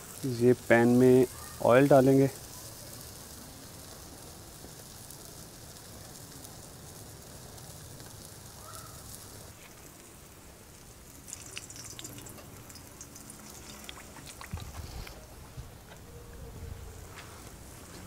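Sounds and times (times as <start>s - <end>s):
potatoes sizzling in hot oil: 0.0s - 15.2s
oil pouring into wok: 10.6s - 15.1s.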